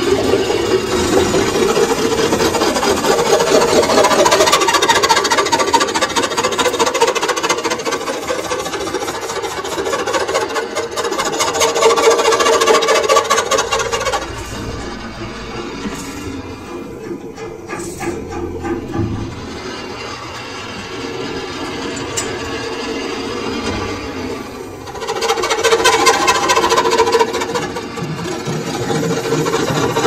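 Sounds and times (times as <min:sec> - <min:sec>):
lathe tool scraping metal: 0:00.0 - 0:23.9
steady tone: 0:12.1 - 0:22.2.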